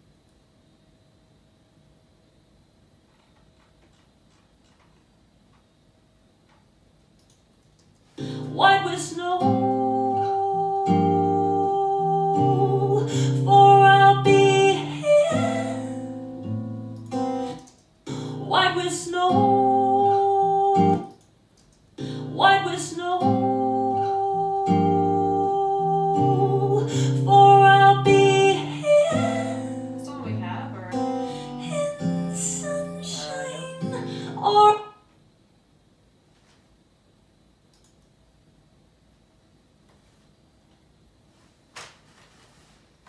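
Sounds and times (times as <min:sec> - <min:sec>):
acoustic guitar: 0:08.2 - 0:21.1, 0:22.0 - 0:34.9
woman singing: 0:08.3 - 0:16.4, 0:18.2 - 0:21.1, 0:22.2 - 0:35.0.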